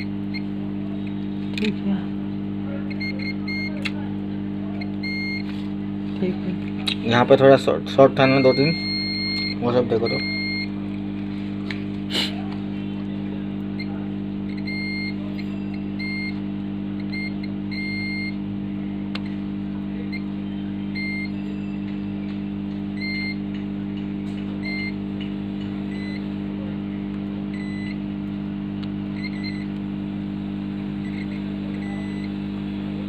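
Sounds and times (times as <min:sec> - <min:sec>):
multimeter buzzer beeping: 0:00.0 - 0:00.5, 0:02.9 - 0:03.8, 0:04.8 - 0:05.5, 0:07.1 - 0:10.8, 0:13.8 - 0:18.5, 0:20.9 - 0:23.6, 0:24.6 - 0:25.1, 0:25.9 - 0:26.3, 0:27.5 - 0:28.1, 0:29.1 - 0:29.8, 0:30.9 - 0:32.4.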